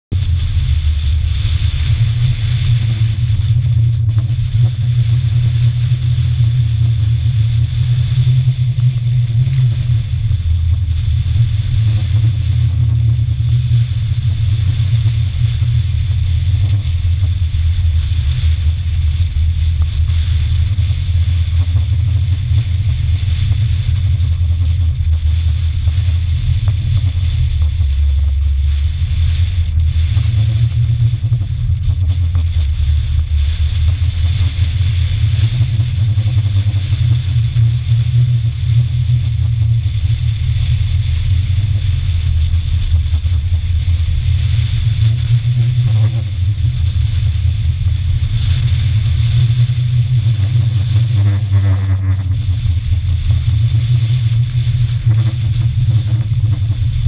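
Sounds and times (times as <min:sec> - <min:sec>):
wind buffeting microphone: 0:00.1 - 0:57.0.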